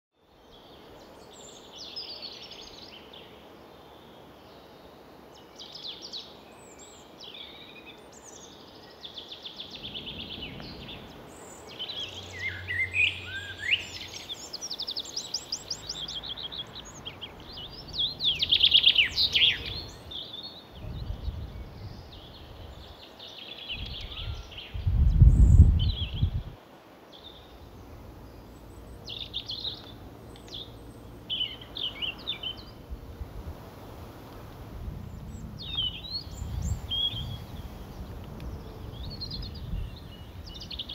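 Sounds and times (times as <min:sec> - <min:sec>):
small songbirds singing and calling: 0:00.3 - 0:26.5, 0:27.1 - 0:33.0, 0:35.0 - 0:40.9
low rumbles: 0:09.7 - 0:14.0, 0:15.6 - 0:20.2, 0:27.6 - 0:40.8.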